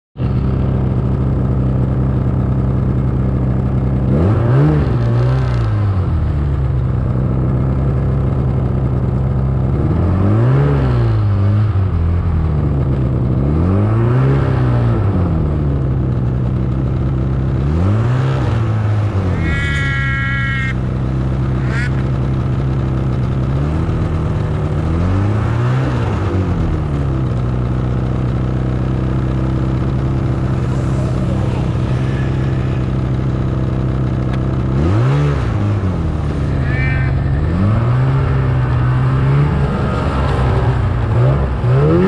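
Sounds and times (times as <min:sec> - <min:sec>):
snowmobile engine revving: 0:03.7 - 0:06.0, 0:12.9 - 0:16.4, 0:17.3 - 0:42.0.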